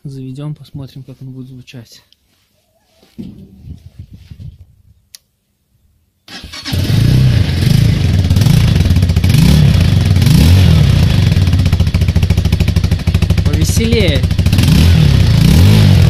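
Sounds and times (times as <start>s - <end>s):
motorcycle engine revving: 6.3s - 16.0s.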